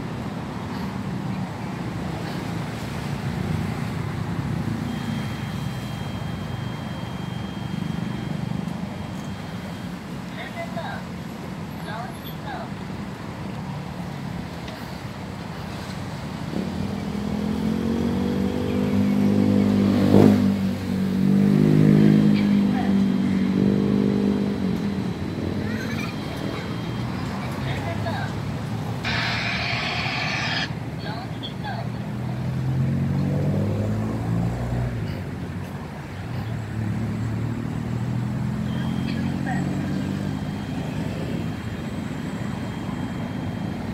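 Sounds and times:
vehicle engine humming: 0.0s - 43.9s
vehicle engine running: 22.4s - 31.1s.

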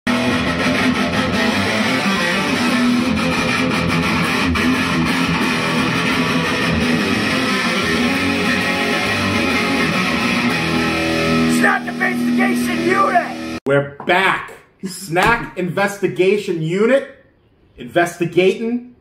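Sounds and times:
electric guitar music: 0.1s - 13.6s.

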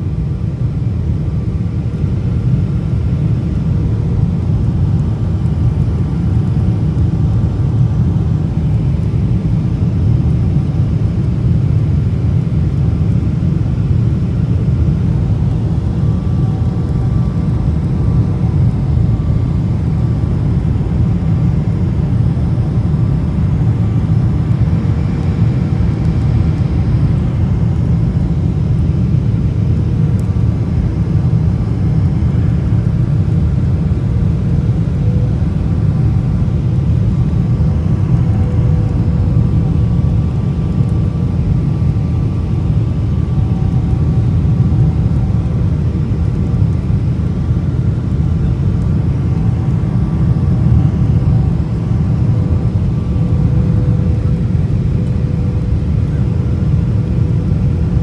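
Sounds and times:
faint steady whine: 0.0s - 58.0s
jet engine cabin rumble: 0.0s - 58.0s.

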